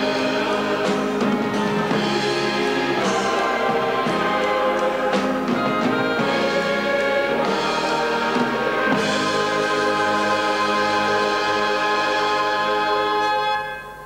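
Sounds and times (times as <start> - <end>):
orchestra with brass playing: 0.0 - 14.0.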